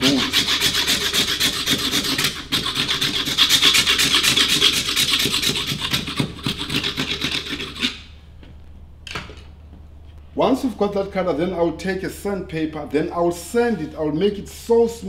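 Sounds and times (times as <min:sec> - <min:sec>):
hand scraping wooden stick: 0:00.0 - 0:08.1.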